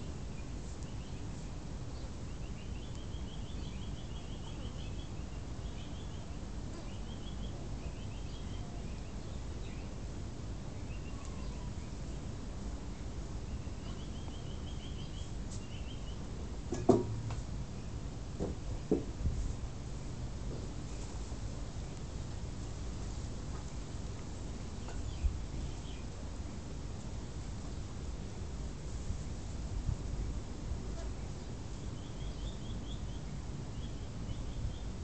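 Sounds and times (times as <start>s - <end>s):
birds chirping in trills: 0.0s - 10.0s, 10.7s - 12.3s, 12.9s - 16.3s, 31.4s - 35.0s
steady low rumble: 11.8s - 35.0s.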